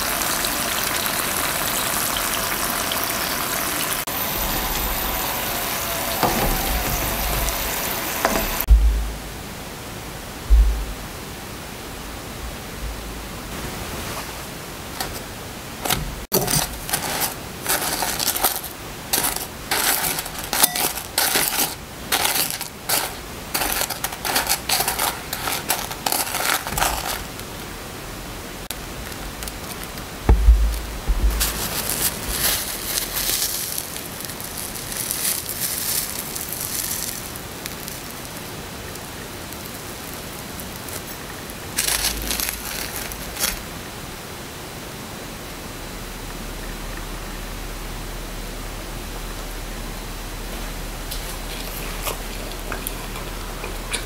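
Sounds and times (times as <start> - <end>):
low thump: 8.2 - 9.3, 10.5 - 11.1, 30.3 - 31.6
gritty sugar rustles: 13.8 - 27.6, 28.7 - 43.7, 50.6 - 54.0.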